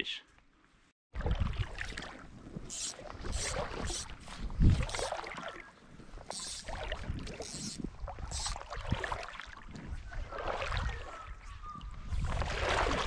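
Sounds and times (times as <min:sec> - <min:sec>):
water splashing around wading legs: 0:01.2 - 0:11.4, 0:12.1 - 0:13.0.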